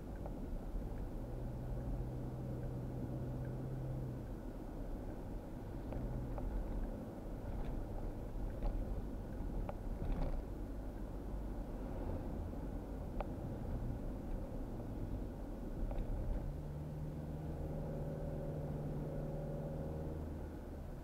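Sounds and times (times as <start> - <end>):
light ticks: 0.0 - 1.2, 13.1 - 13.4
car engine and tyre rumble: 0.0 - 21.0.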